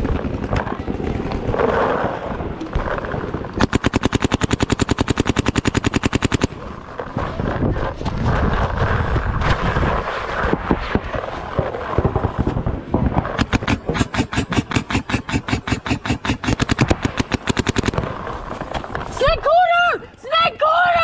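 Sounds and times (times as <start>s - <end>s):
paintball marker firing rapidly: 0.0s - 7.5s, 9.9s - 19.1s
low rumbling noise: 0.0s - 15.4s.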